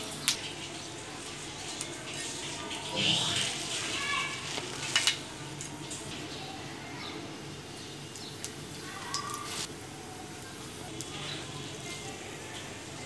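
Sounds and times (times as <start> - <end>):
spices crackling in hot pan: 0.0 - 13.0.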